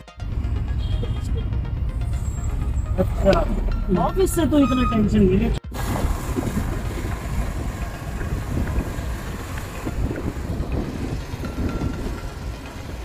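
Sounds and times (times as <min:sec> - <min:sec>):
car driving road noise: 0:00.2 - 0:13.0
wind rushing over microphone: 0:05.7 - 0:13.0.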